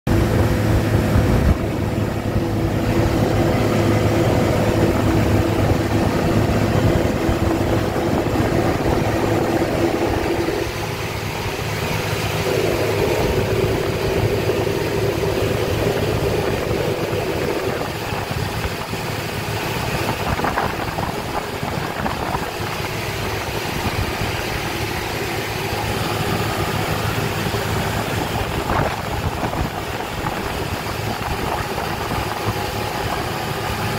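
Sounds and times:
tractor diesel engine droning: 0.1 - 33.9.

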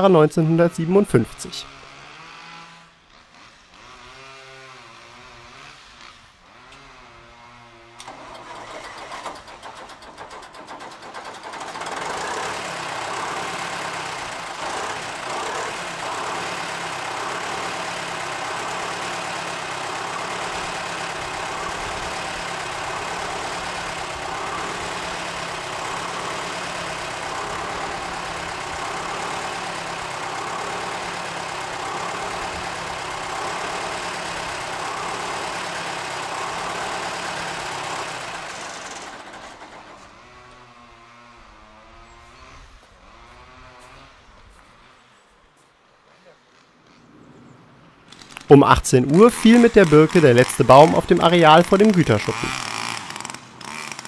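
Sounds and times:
diesel engine starting and idling: 8.0 - 41.5, 48.1 - 54.0.

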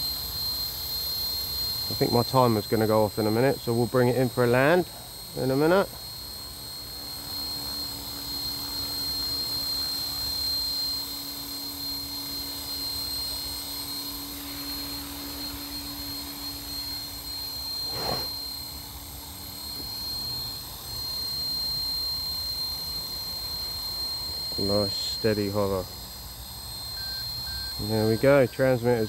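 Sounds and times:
high-pitched motor whine: 0.0 - 29.0
rotors humming: 11.1 - 21.1.

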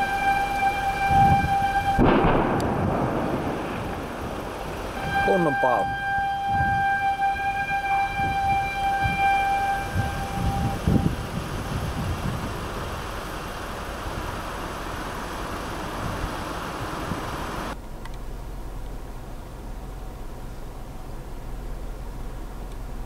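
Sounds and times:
low thumps: 0.0 - 5.2
warning siren steady tone: 0.0 - 17.8.

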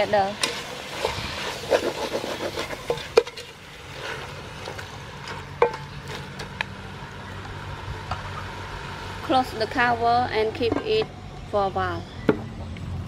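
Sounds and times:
wooden spatula scraping metal pot: 0.0 - 6.6.

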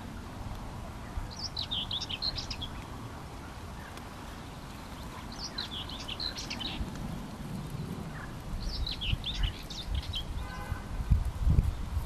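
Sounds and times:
songbird singing: 0.0 - 12.0
distant car horn beep: 10.4 - 10.9.

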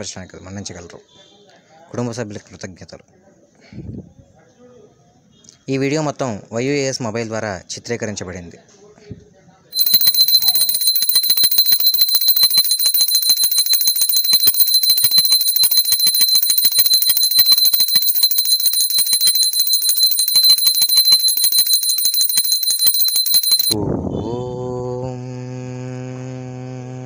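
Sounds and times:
hand bell rung rapidly: 9.8 - 23.8.

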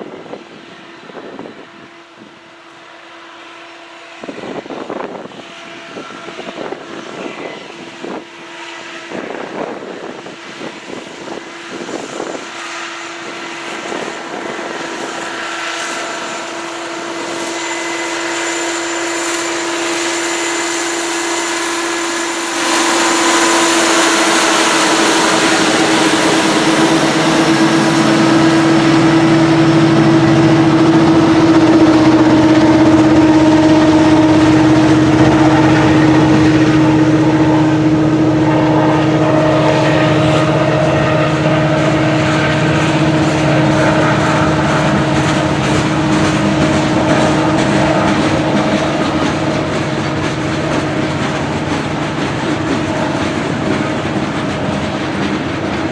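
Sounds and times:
freight train passing: 0.0 - 55.9
diesel engines droning: 13.8 - 55.9.

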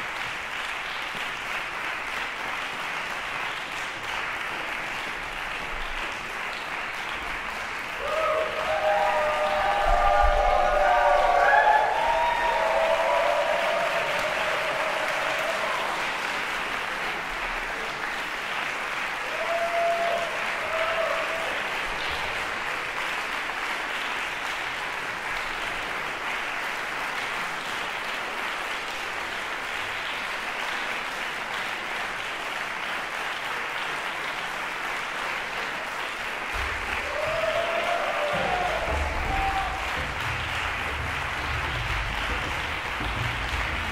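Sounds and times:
audience applauding: 0.0 - 43.9
audience cheering: 8.0 - 16.4, 19.2 - 21.9, 36.5 - 43.9.

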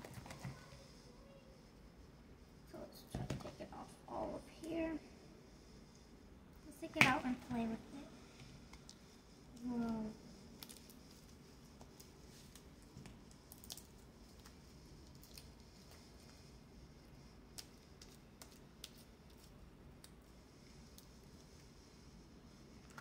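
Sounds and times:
slime squelching: 8.8 - 16.4.

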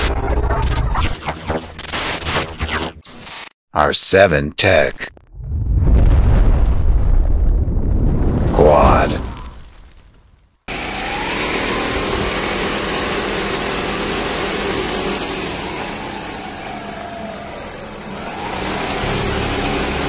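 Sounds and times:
rising and falling whine: 10.7 - 20.0
vehicle rushing at speed: 10.7 - 20.0.

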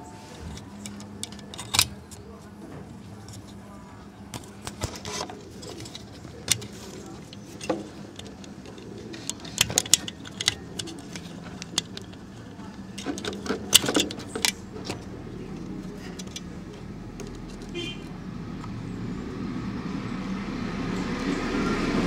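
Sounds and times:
small plastic and metal clicks: 0.4 - 2.3, 4.3 - 17.8.

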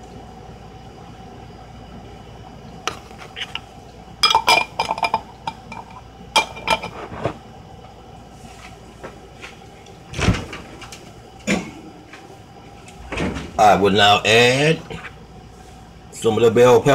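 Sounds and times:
utensil clinking against dishware: 4.2 - 7.0.

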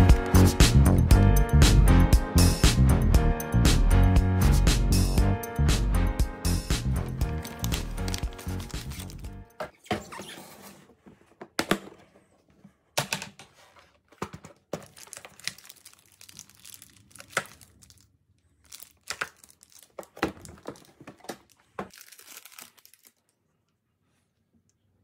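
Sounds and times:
packaging crinkling and rustling: 7.2 - 9.3, 13.6 - 23.5.

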